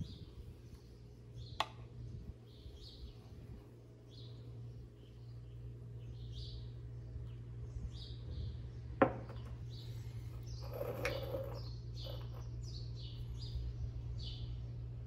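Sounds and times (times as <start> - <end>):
small birds chirping: 0.0 - 15.0
ceramic cups clattering on stone: 10.6 - 12.5.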